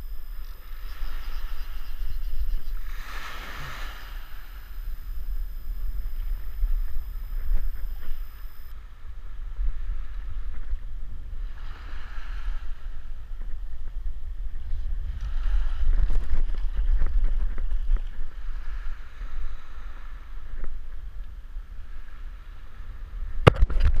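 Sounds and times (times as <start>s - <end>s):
wind buffeting the microphone: 0.0s - 22.1s.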